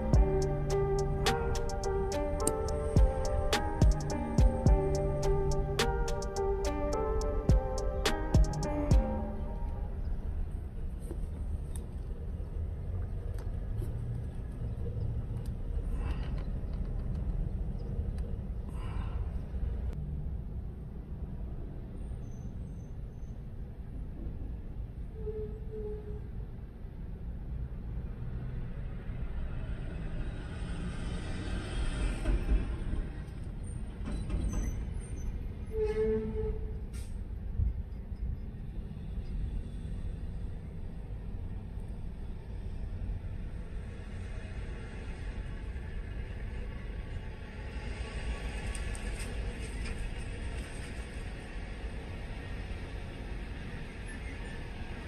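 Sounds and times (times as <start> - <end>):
motor vehicles rumbling: 0.0 - 25.1
brief squeal: 22.0 - 23.4, 25.1 - 26.4, 33.6 - 37.2.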